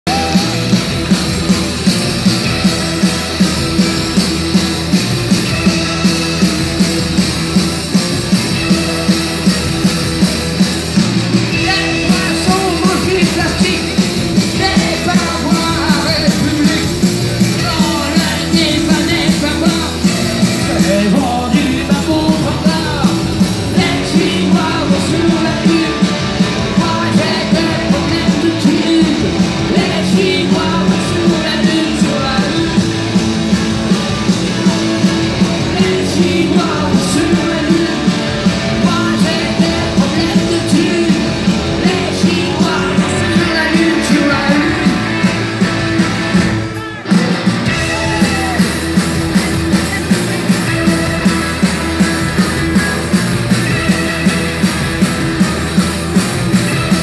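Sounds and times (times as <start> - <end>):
person singing: 0.0 - 1.2, 11.5 - 33.0, 34.0 - 45.8
drums beating: 0.0 - 57.0
punk rock band playing: 0.0 - 57.0.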